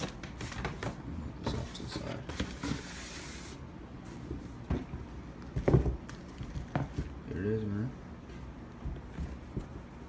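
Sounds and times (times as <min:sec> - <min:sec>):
papery rubbing hiss: 0:02.5 - 0:03.7.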